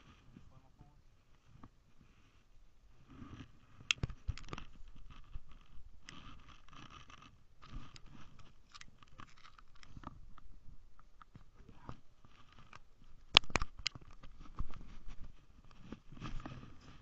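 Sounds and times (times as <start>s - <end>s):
sharp clicks and knocks: 3.8s - 14.8s
jacket fabric rustling on microphone: 14.0s - 17.0s.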